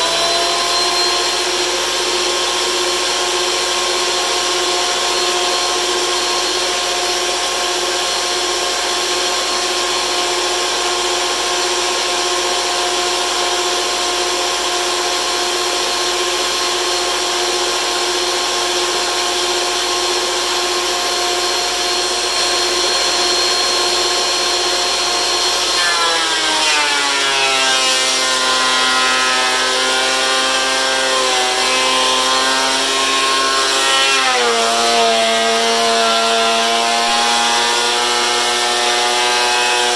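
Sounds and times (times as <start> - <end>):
thickness planer whining: 0.0 - 39.9.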